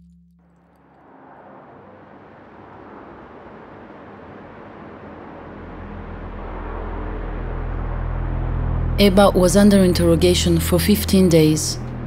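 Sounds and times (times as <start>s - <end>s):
car tyres and engine rushing: 0.0s - 12.0s
low hum: 0.0s - 12.0s.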